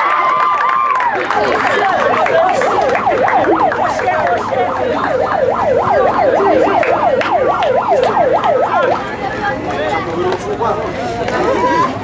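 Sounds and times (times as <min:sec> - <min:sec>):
crowd chatter: 0:00.0 - 0:12.0
siren yelping: 0:01.6 - 0:09.4.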